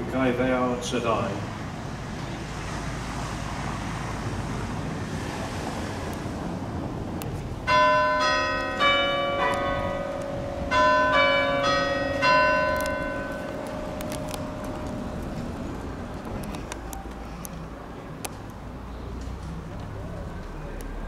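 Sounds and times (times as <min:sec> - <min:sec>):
low outdoor hum: 0:05.3 - 0:21.0
bells chiming: 0:07.7 - 0:15.1.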